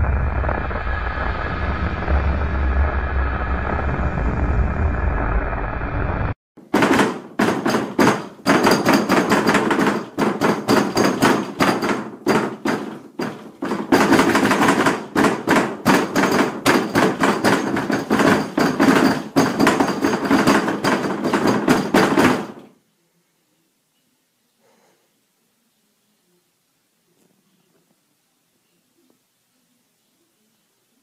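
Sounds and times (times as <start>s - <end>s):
pounding on a door: 6.6s - 22.7s.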